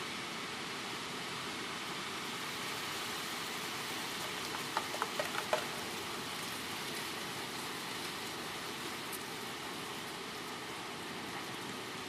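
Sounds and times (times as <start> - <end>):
wind-driven rain: 0.0 - 12.0
tree leaves thrashing: 4.1 - 6.9.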